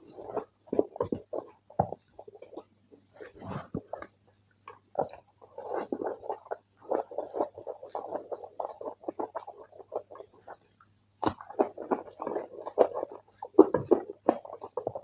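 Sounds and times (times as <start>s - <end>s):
hand squishing rice and curry: 0.0s - 15.0s
mouth chewing sounds: 0.0s - 15.0s
sticky crackles and clicks: 3.8s - 15.0s.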